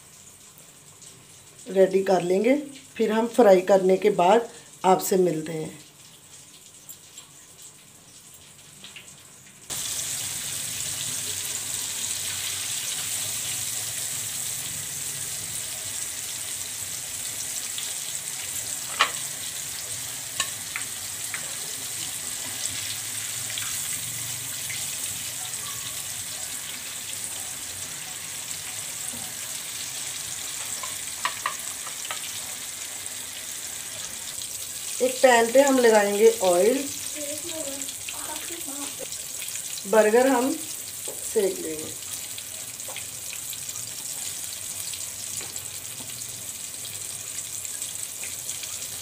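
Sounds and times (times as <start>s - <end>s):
chicken deep-frying in oil: 0.0s - 49.0s
metal turner clinking pan: 20.4s - 21.4s.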